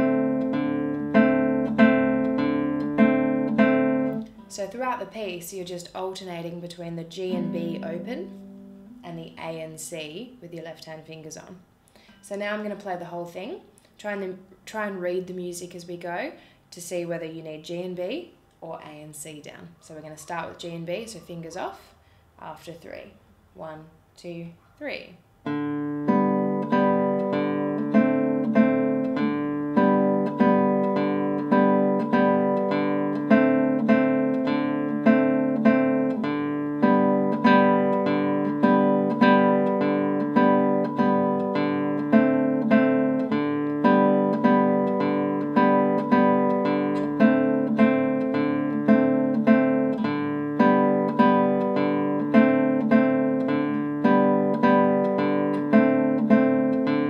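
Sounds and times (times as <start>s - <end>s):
classical guitar arpeggio: 0.0s - 10.1s, 25.4s - 57.0s.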